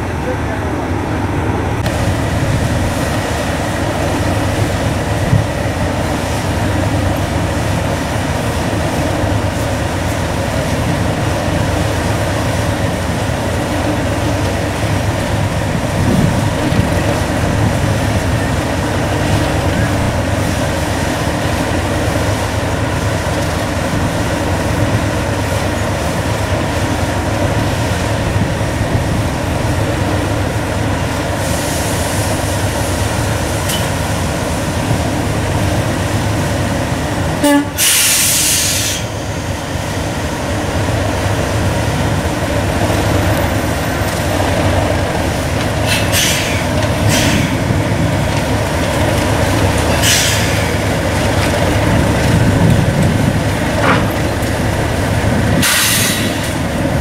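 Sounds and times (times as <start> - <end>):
diesel locomotive idling: 0.0 - 57.0
air hissing: 37.8 - 39.2, 45.8 - 47.6, 55.6 - 56.7.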